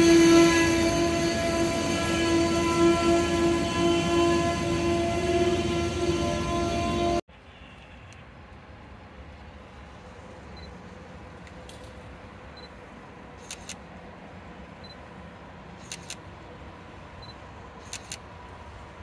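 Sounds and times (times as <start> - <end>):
train rumbling: 0.0 - 7.8.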